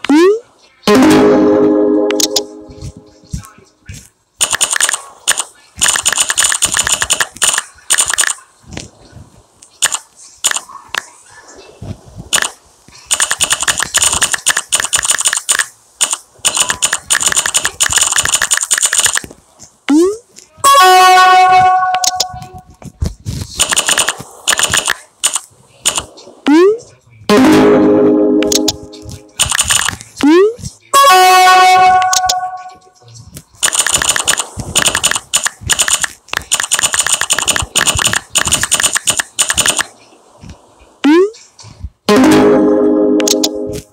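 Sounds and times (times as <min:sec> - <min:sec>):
phone keyboard clicks: 0:33.6 - 0:39.9.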